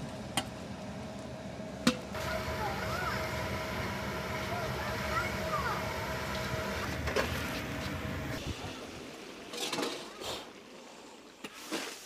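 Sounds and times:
steady rushing hum: 0:00.0 - 0:09.1.

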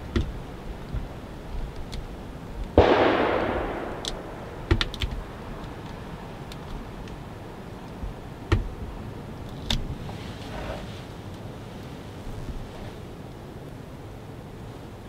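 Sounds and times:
rush of noise: 0:02.8 - 0:06.2.

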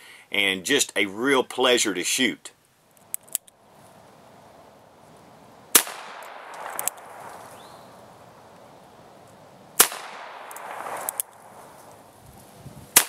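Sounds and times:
revolver shot with echo: 0:05.8 - 0:06.7, 0:09.8 - 0:11.2
revolver hammer cocking clicks: 0:10.1 - 0:11.4.

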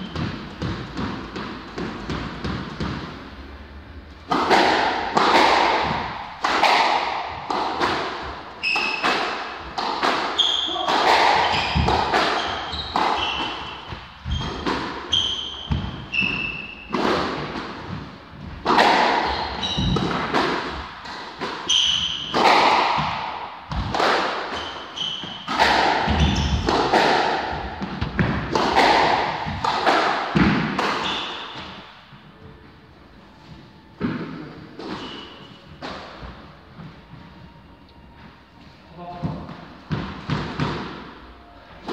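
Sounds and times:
squash ball hitting rackets and walls: 0:00.0 - 0:03.4, 0:04.2 - 0:32.2, 0:34.0 - 0:37.0, 0:39.2 - 0:41.9
shoes squeaking on wooden floor: 0:08.2 - 0:20.4, 0:21.6 - 0:22.6, 0:24.5 - 0:29.7, 0:31.0 - 0:31.9, 0:34.7 - 0:38.3.

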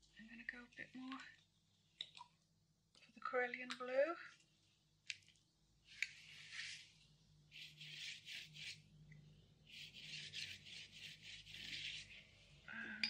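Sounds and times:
paintbrush scratchy strokes: 0:06.2 - 0:08.9, 0:09.7 - 0:12.6.

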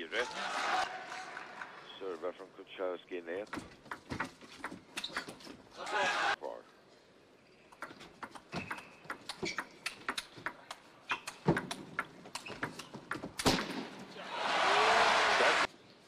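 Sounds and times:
crowd applause: 0:00.2 - 0:02.0, 0:14.2 - 0:15.7.

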